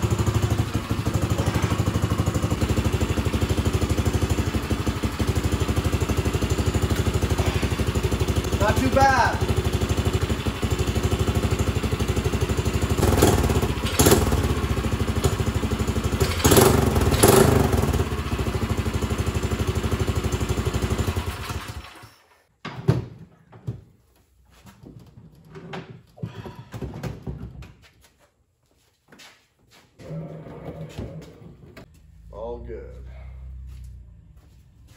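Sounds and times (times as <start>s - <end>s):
small petrol engine running: 0.0s - 22.4s.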